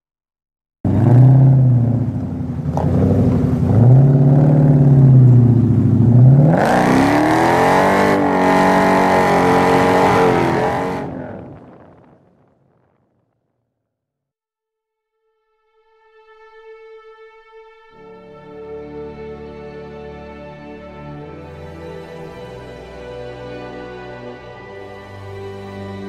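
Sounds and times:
car engine revving: 0.9 - 11.8.

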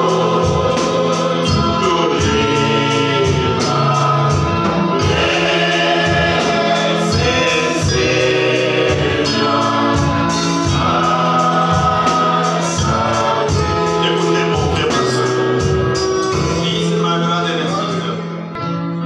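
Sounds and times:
electronic keyboard chords: 0.0 - 19.0
man singing: 1.5 - 2.7.

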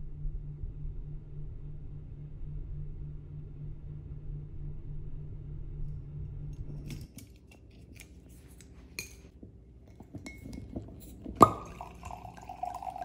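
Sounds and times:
low steady hum: 0.0 - 13.0
corkscrew clicking and scraping: 6.6 - 11.4.

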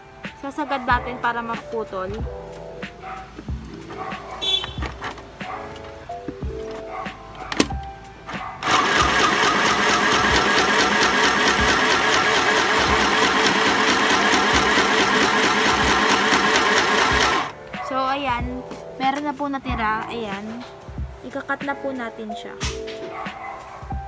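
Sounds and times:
sewing machine stitching: 8.6 - 17.5.

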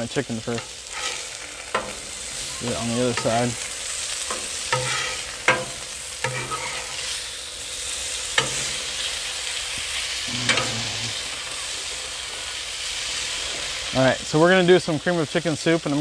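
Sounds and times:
food sizzling on griddle: 0.0 - 16.0
metal spatula scraping and clinking: 0.6 - 2.0, 4.2 - 7.2.

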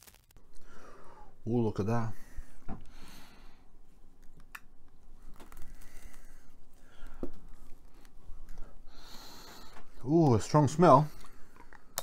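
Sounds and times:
wrapper rustling: 0.0 - 0.4, 4.9 - 8.7.

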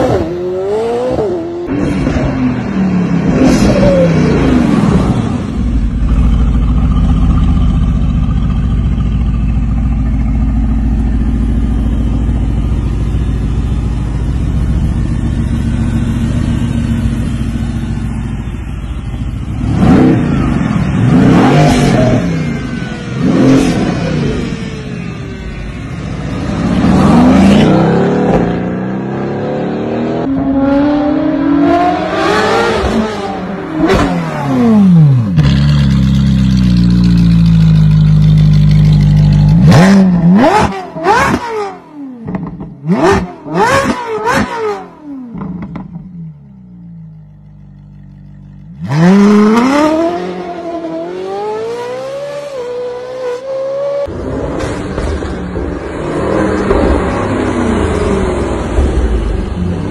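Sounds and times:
car engine accelerating and revving: 0.0 - 7.8, 19.4 - 46.3, 48.2 - 59.9.

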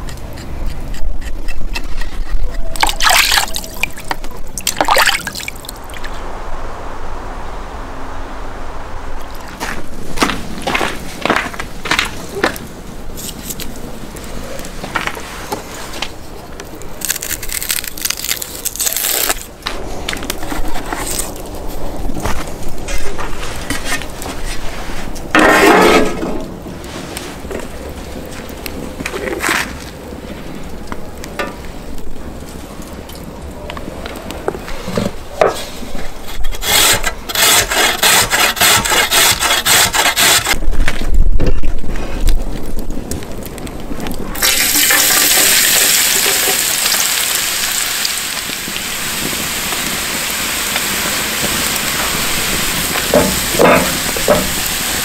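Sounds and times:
onion skin crackling and tearing: 16.6 - 19.5
carrot grating on metal grater: 36.2 - 40.6.

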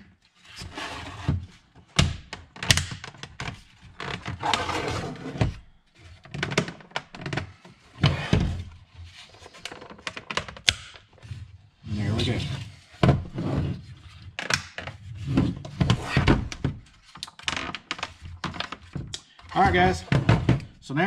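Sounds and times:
plastic scraping: 3.1 - 11.3.

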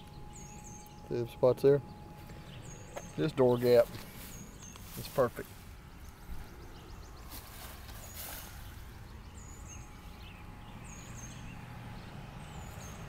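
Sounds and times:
small bird chirping: 0.0 - 5.3
low steady rumble: 0.0 - 13.0.

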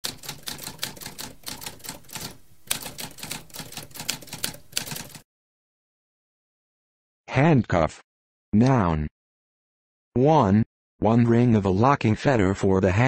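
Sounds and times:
typewriter key strikes: 0.0 - 5.2.

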